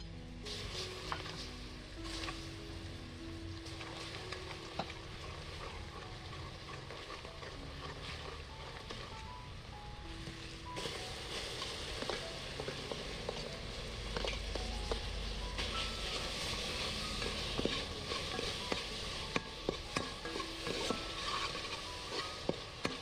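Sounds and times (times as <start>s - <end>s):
sugar and oil sizzling in a pot: 0.0s - 23.0s
metal ladle scraping and clinking: 10.8s - 23.0s.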